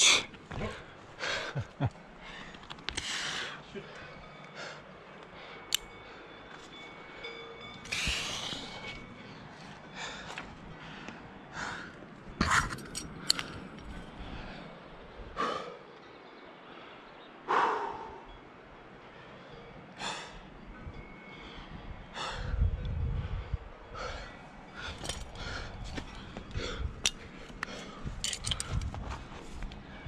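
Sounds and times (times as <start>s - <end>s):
climber breathing hard: 0.0s - 15.9s, 17.4s - 18.3s, 20.0s - 30.0s
metal climbing gear clicking: 2.4s - 3.3s, 5.2s - 6.0s, 7.7s - 9.1s, 12.4s - 14.2s, 24.8s - 29.8s.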